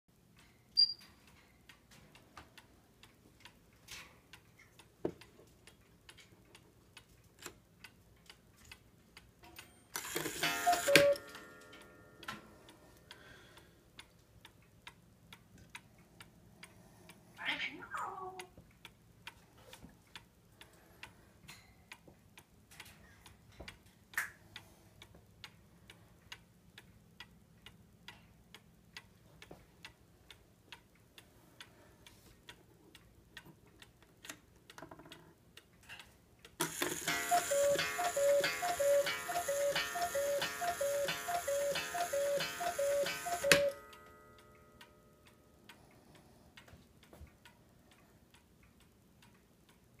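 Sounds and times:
clock ticking: 0.1 - 17.2, 18.3 - 50.0
cuckoo clock calling: 9.9 - 12.2, 36.6 - 44.6.

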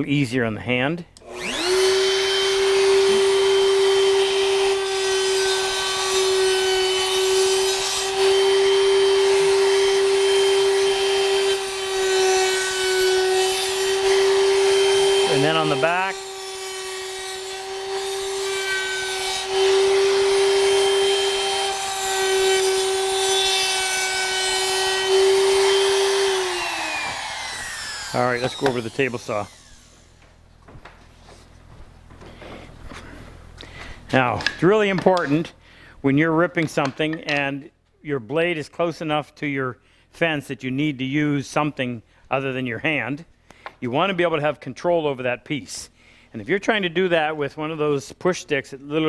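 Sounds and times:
router high whine: 1.2 - 30.3.

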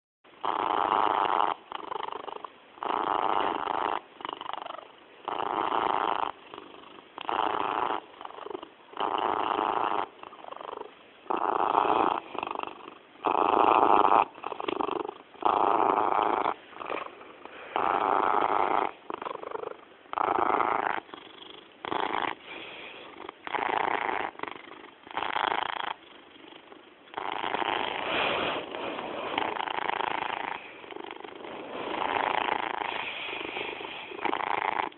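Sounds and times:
cat purring: 0.3 - 34.9.

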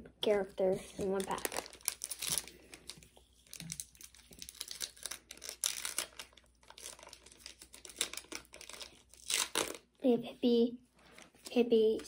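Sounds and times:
wrapper crinkling: 0.9 - 9.8.

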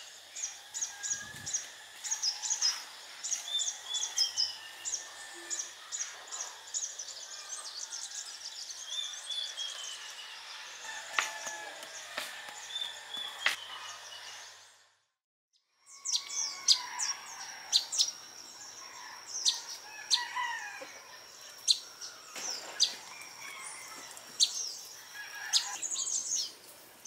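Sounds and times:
birds chirping: 0.0 - 14.9
knocks on wooden stakes: 11.1 - 13.6.

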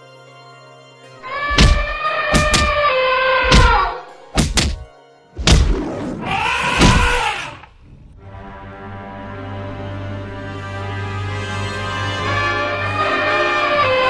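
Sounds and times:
elephant trumpeting: 1.2 - 4.1, 6.2 - 7.8, 12.2 - 14.0
heavy thuds of blows: 1.5 - 2.8, 3.5 - 5.9, 6.7 - 7.2.

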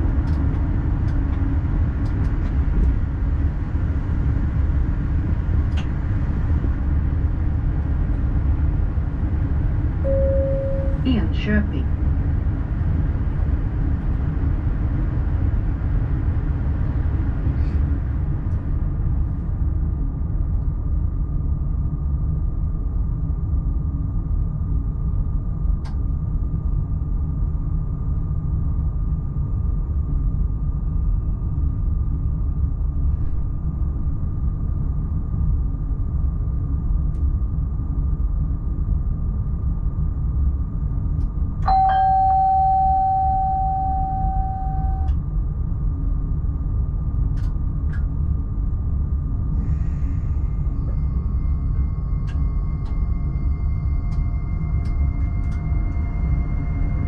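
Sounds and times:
electric train rumble and whine: 0.0 - 57.0
chime ringing: 41.7 - 45.1.

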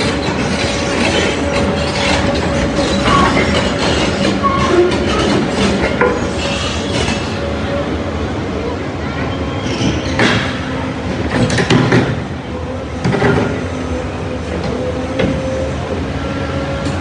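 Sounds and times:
steel rail and concrete crunching: 0.0 - 17.0.

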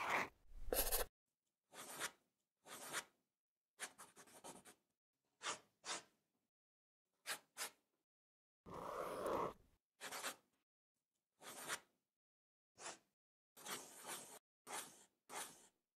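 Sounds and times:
pencil scratching on paper: 0.0 - 1.1, 1.7 - 3.2, 3.8 - 4.8, 5.4 - 6.2, 7.2 - 7.8, 9.0 - 10.5, 11.4 - 11.9, 12.8 - 15.8.

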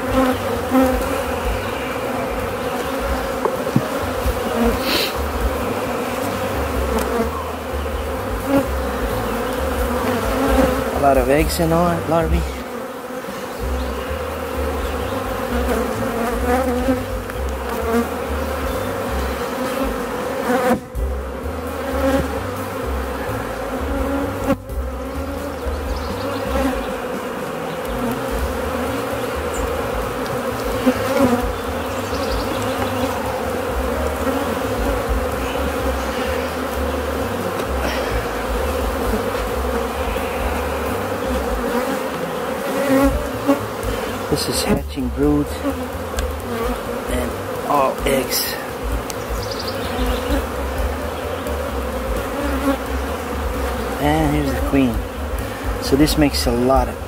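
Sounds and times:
honeybees buzzing: 0.0 - 57.0.

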